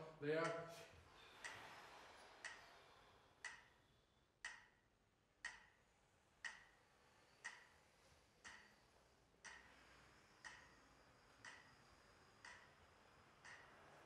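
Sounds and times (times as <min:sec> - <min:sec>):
faint metronome ticking: 0:00.0 - 0:01.6, 0:03.4 - 0:03.8, 0:04.4 - 0:04.8, 0:05.4 - 0:05.8, 0:06.4 - 0:06.8, 0:07.4 - 0:07.7, 0:08.4 - 0:08.8, 0:09.4 - 0:13.8.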